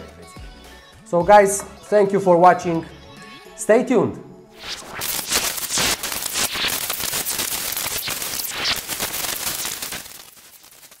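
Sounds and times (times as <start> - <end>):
dense crackling clicks and pops: 4.6 - 11.0.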